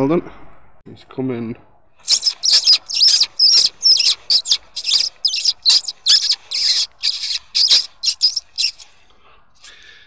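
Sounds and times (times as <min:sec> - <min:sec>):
fox call squeaking: 0:02.0 - 0:08.9.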